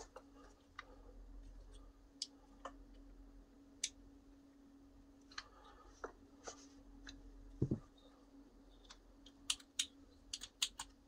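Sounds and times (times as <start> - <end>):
faint steady hum: 0.0 - 11.0
dull knock: 7.6 - 7.8.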